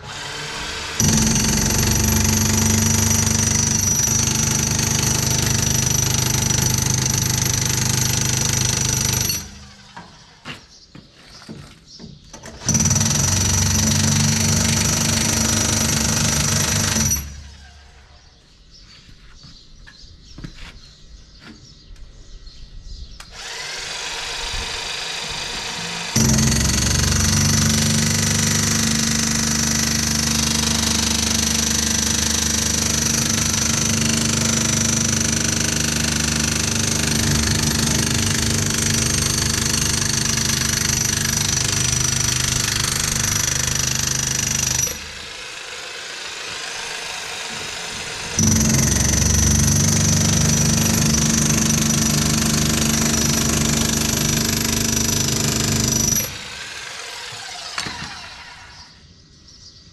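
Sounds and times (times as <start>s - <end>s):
electric power tool whining: 0.0s - 10.2s, 23.2s - 59.0s.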